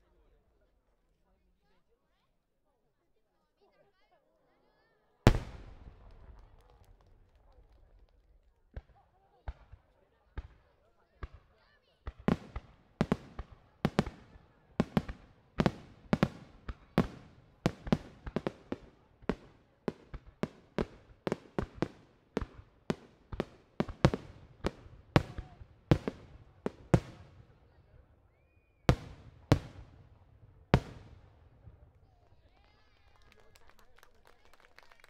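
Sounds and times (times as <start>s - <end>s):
fireworks bursting: 5.3s - 8.9s, 12.0s - 31.8s.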